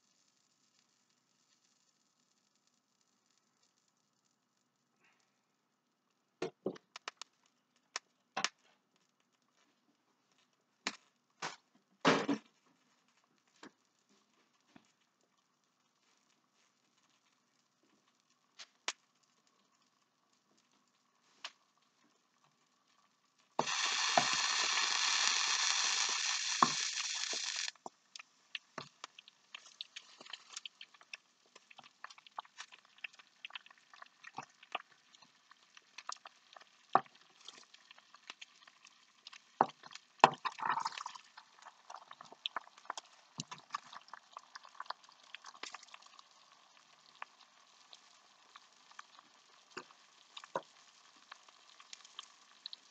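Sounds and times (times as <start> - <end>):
fish crackling in frying pan: 16.0 - 52.9
loud steady hiss: 23.6 - 27.8.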